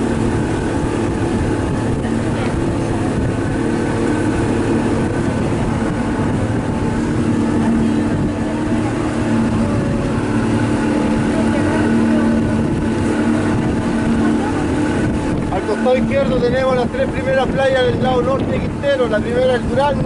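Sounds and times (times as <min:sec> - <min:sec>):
boat engine droning: 0:00.0 - 0:20.0
wind and water rumble: 0:00.0 - 0:20.0.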